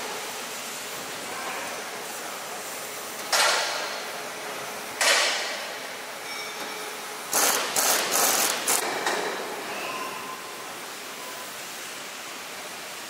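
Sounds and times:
steady background noise: 0.0s - 13.0s
metal clanks ringing in a hall: 6.2s - 7.1s, 8.8s - 10.6s.

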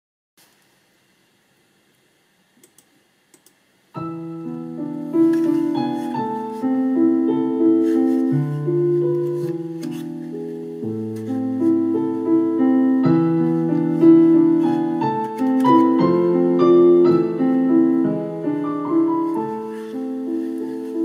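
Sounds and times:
faint clicks: 2.6s - 3.6s.

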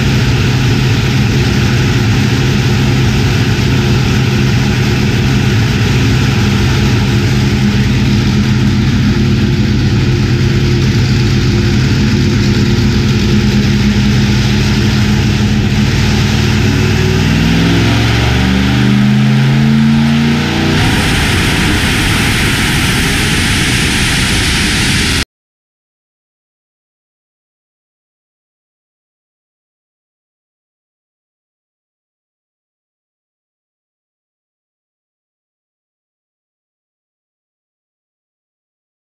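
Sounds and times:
engine idling loud and rough: 0.0s - 25.2s.

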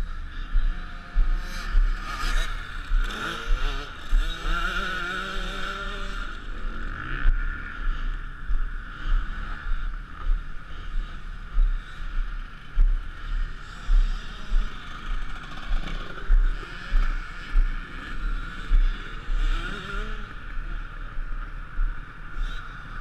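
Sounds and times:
motorbike engines running: 0.0s - 23.0s.

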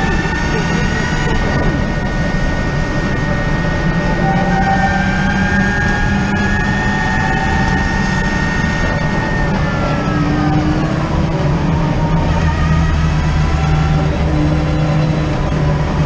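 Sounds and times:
road and wind noise rumble: 0.0s - 16.0s.

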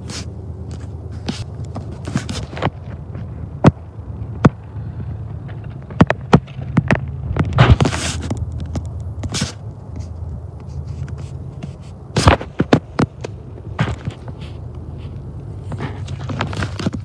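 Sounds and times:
footsteps crunching on gravel: 0.0s - 4.4s, 5.2s - 17.0s
steady low hum: 0.0s - 17.0s.

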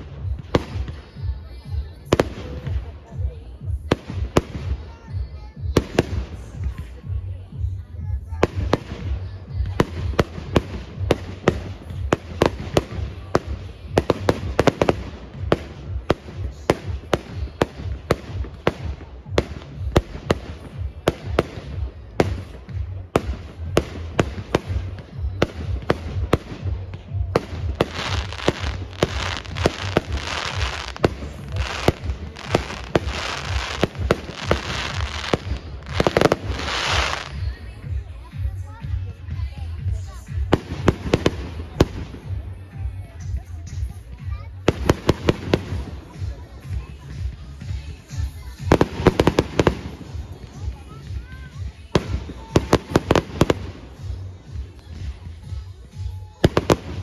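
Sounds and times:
fireworks crackle: 8.3s - 38.6s, 43.7s - 57.0s
fireworks bangs: 8.4s - 37.5s.

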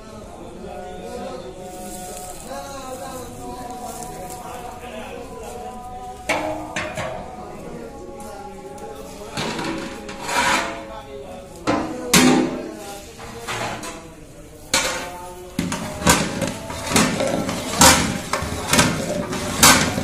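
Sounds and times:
ladle knocking against metal pot: 15.6s - 20.0s.

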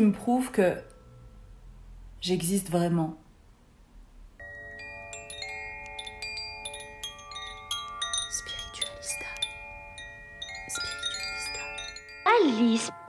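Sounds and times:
metal chimes ringing: 4.4s - 13.0s
person speaking: 8.3s - 9.5s.

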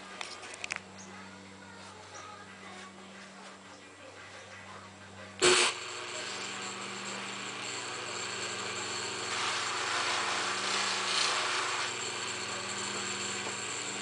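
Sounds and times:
bench grinder motor hum: 5.4s - 14.0s
metal polishing on buffing wheel: 5.4s - 14.0s.

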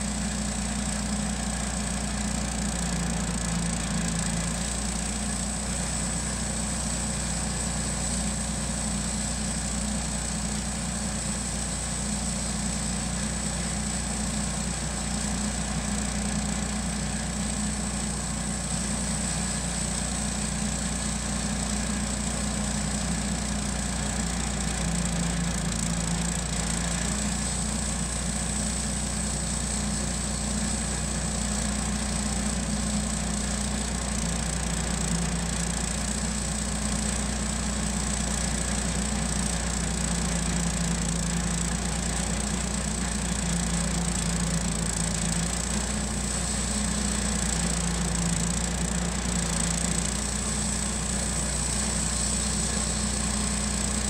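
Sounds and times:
band sawmill cutting log: 0.0s - 54.0s.

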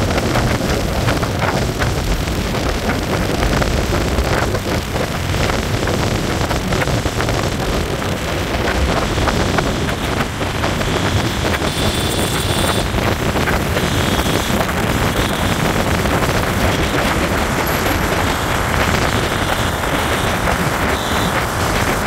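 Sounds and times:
motorcycle engine: 0.0s - 22.0s
road noise: 0.0s - 22.0s
wind rushing over microphone: 0.0s - 22.0s.

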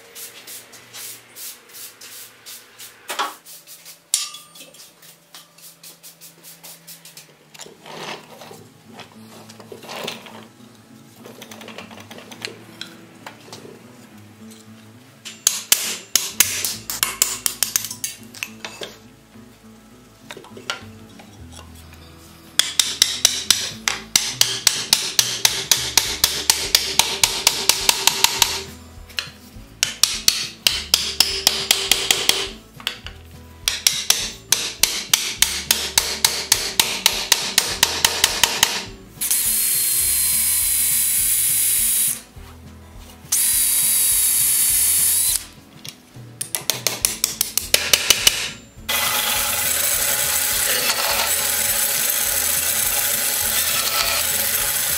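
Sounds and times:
hammer knocking wooden spokes: 22.6s - 28.7s, 29.8s - 32.6s, 33.7s - 38.8s
band saw running: 48.9s - 54.9s.

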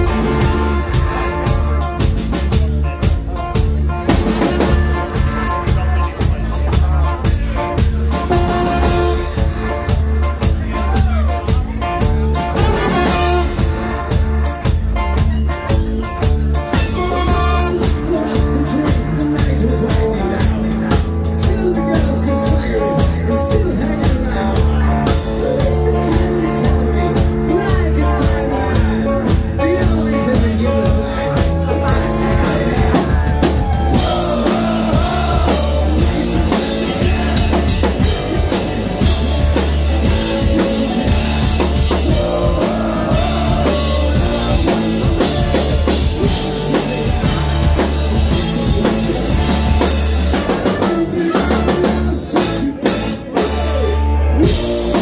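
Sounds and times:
trumpet and trombone: 0.0s - 2.2s, 8.2s - 10.4s, 12.4s - 14.6s, 16.6s - 18.3s
ska-punk band playing: 0.0s - 55.0s.

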